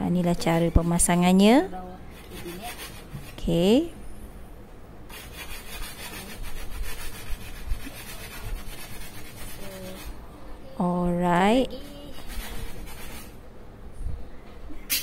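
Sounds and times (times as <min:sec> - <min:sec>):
dry rubbing and scratching: 0:02.1 - 0:03.7, 0:05.1 - 0:10.2, 0:11.6 - 0:13.4.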